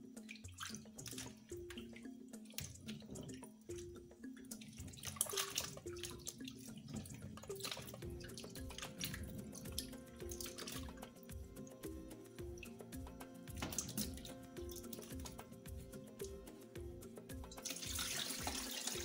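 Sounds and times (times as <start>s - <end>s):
soft background music: 0.0s - 19.0s
water sloshing in a bowl: 0.1s - 19.0s.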